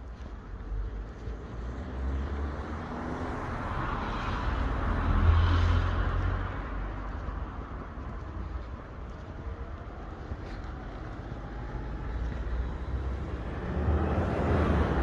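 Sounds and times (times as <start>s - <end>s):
car driving past: 1.3s - 7.4s, 10.5s - 15.0s.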